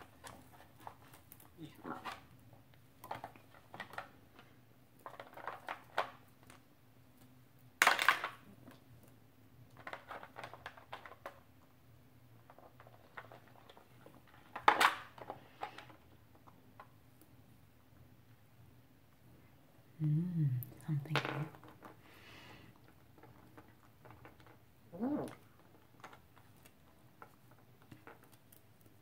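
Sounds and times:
plastic toy fruits clattering: 5.0 - 6.2, 7.8 - 8.5, 9.7 - 11.4, 12.4 - 16.9, 22.8 - 28.8.

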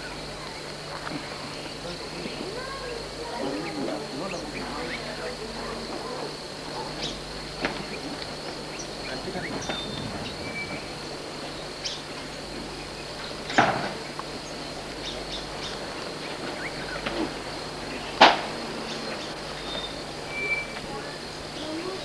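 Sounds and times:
steady high hiss: 0.0 - 22.0
faint bird chirps: 8.7 - 10.9, 17.8 - 22.0.

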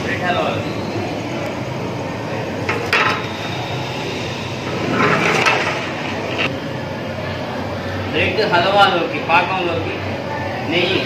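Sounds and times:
steady background noise: 0.0 - 11.0
metal utensils scraping pots: 4.7 - 6.5.

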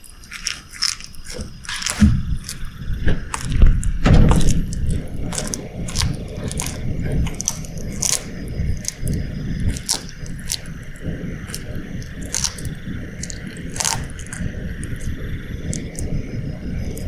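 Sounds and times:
lizard chewing crunches: 0.0 - 17.0
heavy thumps: 1.4 - 13.0.

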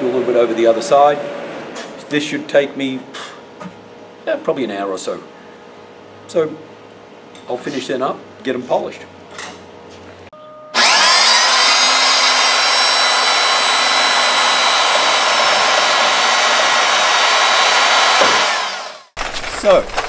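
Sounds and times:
power tool motor whining: 10.8 - 19.2.

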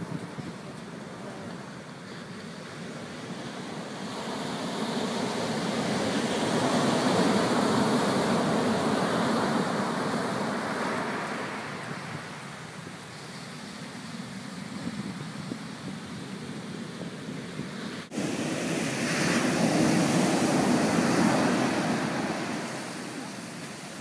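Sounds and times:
surf washing up sandy beach: 0.0 - 24.0.

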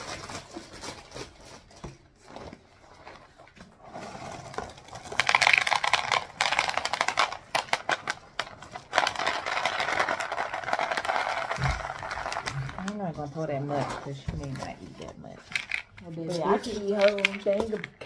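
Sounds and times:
plastic bag crinkling: 0.0 - 18.0
cereal rattling into plastic bowl: 4.0 - 13.0, 15.4 - 16.0, 16.6 - 18.0.

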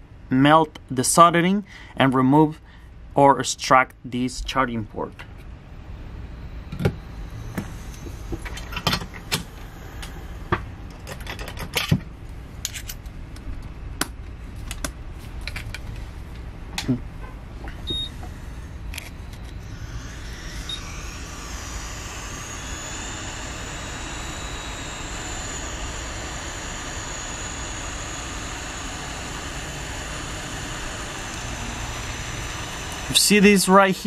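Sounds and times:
hot-air station hissing: 7.2 - 10.6, 18.1 - 34.0.

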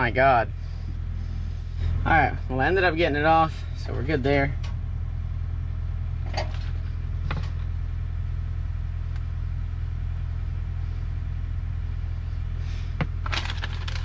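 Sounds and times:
engine idling: 0.0 - 14.0
parts clicking and rattling: 6.2 - 7.7, 13.0 - 14.0.

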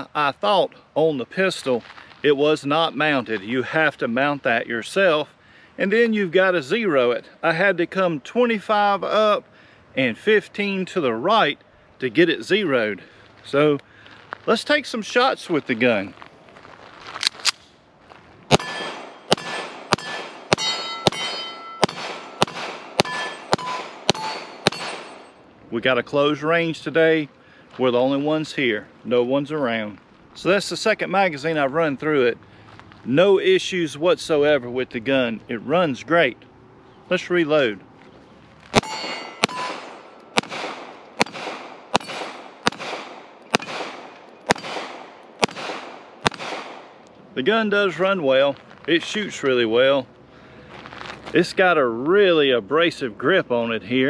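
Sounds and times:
pistol shots: 18.5 - 25.4, 38.7 - 47.0
steel plate target clanging: 18.5 - 25.4, 38.8 - 40.5, 41.2 - 42.7.

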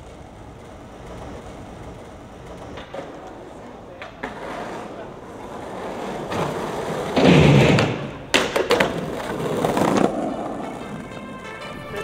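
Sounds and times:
skateboard clack: 0.0 - 12.0
skateboard wheels rolling on stone: 0.0 - 12.0
skateboard knocks: 6.2 - 11.2.

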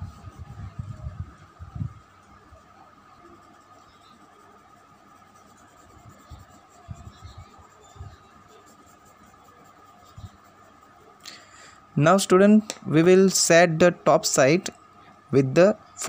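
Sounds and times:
faint steady hum: 0.0 - 16.0
pencil shading on paper: 3.2 - 11.2.

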